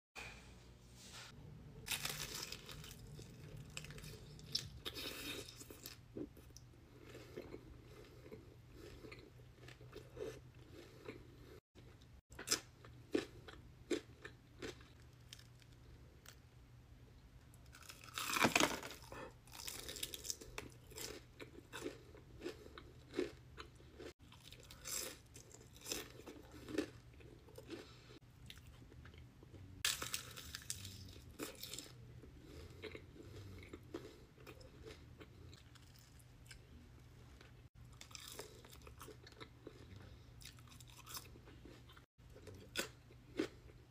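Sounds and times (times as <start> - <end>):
crunching bites of fried food: 1.9 - 7.6, 12.3 - 16.4, 17.6 - 28.7, 29.8 - 36.6, 37.9 - 43.7.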